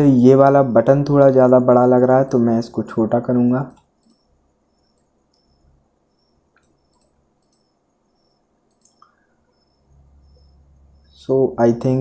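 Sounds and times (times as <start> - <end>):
faint computer mouse clicks: 6.6 - 7.7, 8.7 - 9.2.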